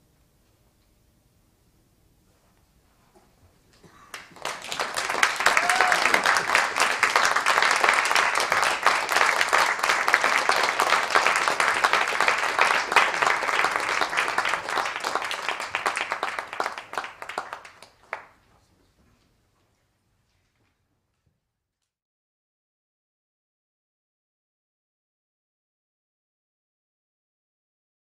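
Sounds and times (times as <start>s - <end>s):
audience applauding: 4.1s - 18.4s.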